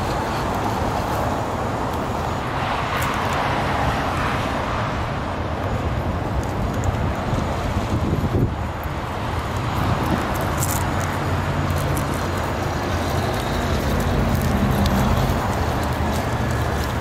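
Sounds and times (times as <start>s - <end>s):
wood chips crackling under tyres: 0.0s - 4.4s, 5.4s - 17.0s
road traffic hum: 0.0s - 17.0s
toy car motor and gears: 9.3s - 17.0s.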